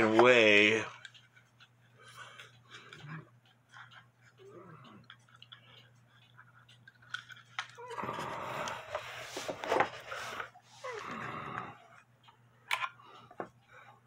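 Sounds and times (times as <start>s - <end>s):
clock handling clicks: 12.2s - 13.6s.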